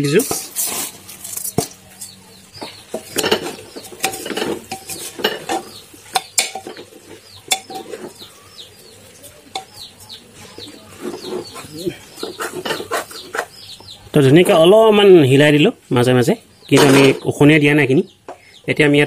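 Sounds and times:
bird chirps: 1.9s - 19.0s
spoon scraping metal pot: 2.8s - 8.3s, 11.0s - 13.6s.

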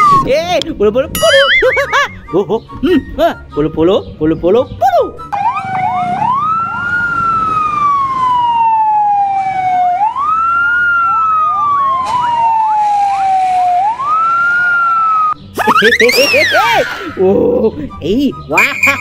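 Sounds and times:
faint gliding sirens: 5.3s - 15.4s
fire engine sirens wailing: 5.3s - 15.4s.

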